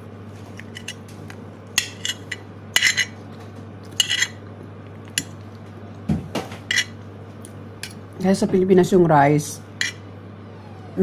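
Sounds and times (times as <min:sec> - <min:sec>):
metal spoon scraping a plate: 0:00.6 - 0:01.0, 0:01.8 - 0:03.2, 0:03.9 - 0:04.4, 0:06.7 - 0:07.0, 0:09.8 - 0:10.0.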